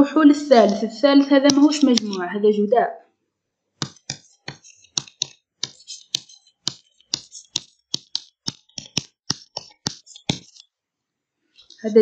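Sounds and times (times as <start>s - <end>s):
stylus tapping on screen: 1.4s - 2.3s, 3.8s - 10.7s.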